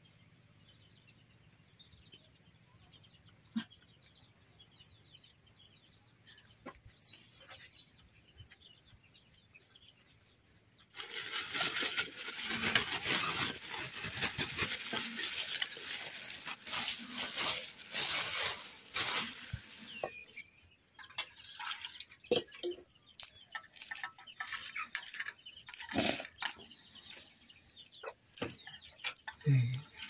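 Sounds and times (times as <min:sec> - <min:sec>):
plastic bag crinkling: 0:10.9 - 0:20.2.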